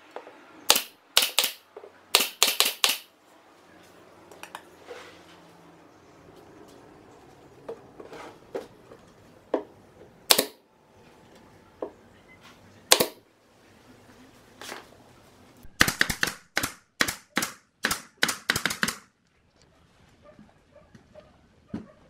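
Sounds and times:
pneumatic nailer firing: 0.7s - 3.1s, 10.3s - 10.6s, 12.9s - 13.2s, 15.8s - 19.0s.

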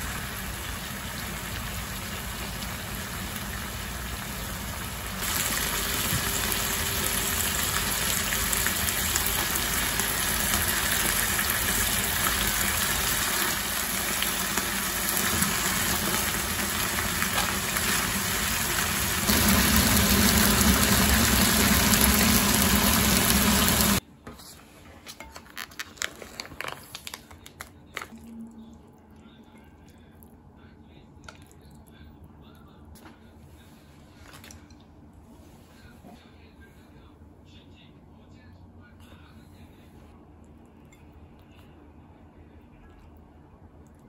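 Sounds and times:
meat sizzling in a frying pan: 0.0s - 24.0s.

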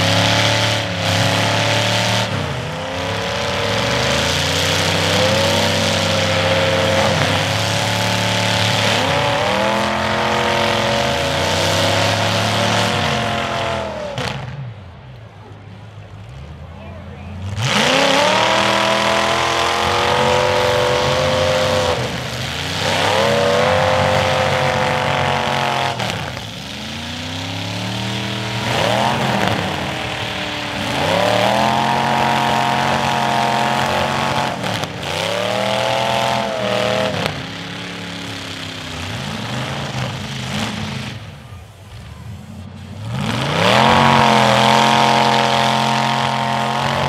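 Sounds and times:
car engines revving hard: 0.0s - 47.0s.

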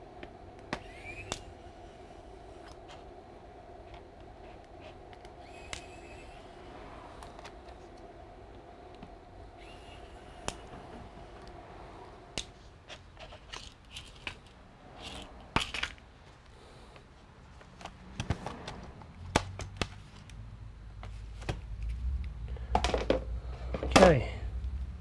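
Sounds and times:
low hum: 0.0s - 16.6s
hand tools clicking and scraping: 0.6s - 1.6s, 3.8s - 8.1s, 8.9s - 20.3s.

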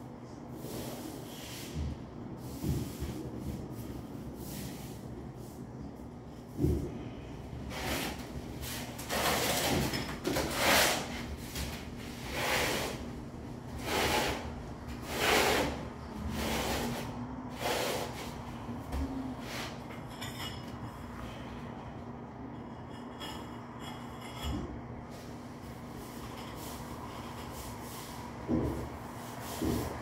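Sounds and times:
steel trowel scraping mortar: 10.4s - 11.2s, 13.8s - 18.2s.

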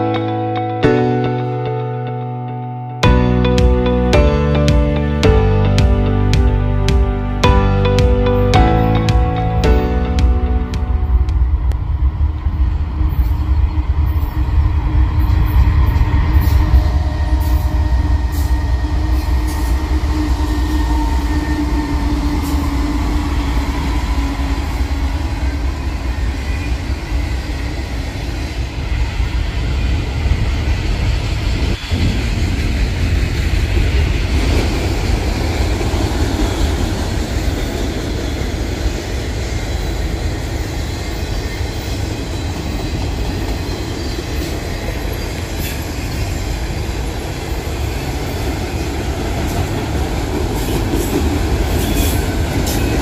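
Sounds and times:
diesel locomotive engine rumble: 6.5s - 53.0s
train wheels on rails: 10.8s - 53.0s.

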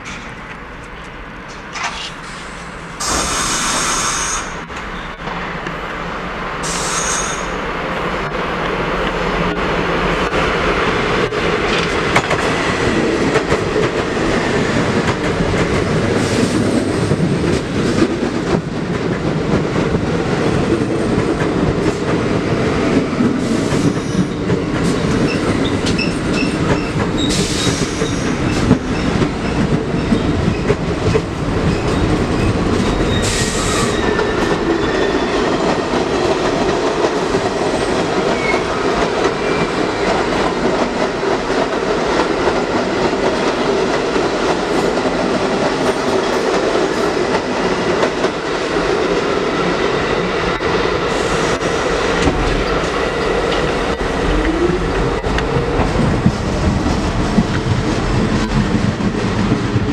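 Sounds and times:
high wheel squeals: 6.6s - 7.6s.

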